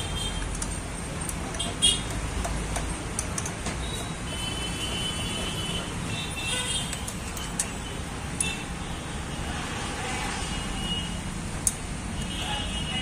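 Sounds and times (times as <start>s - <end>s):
road traffic rumble: 0.0s - 13.0s
spanner clicking on metal: 0.3s - 4.2s.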